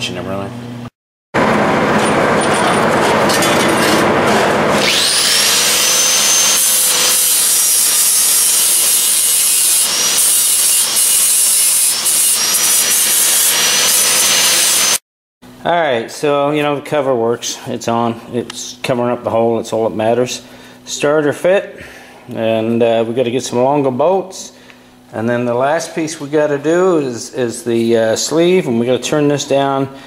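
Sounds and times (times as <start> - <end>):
angle grinder grinding metal: 1.6 - 15.0
rough scraping: 1.8 - 5.4.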